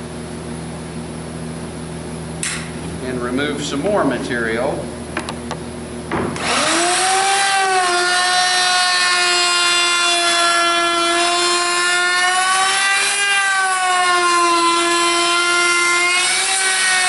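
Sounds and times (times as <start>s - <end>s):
router motor whining: 6.4s - 17.0s.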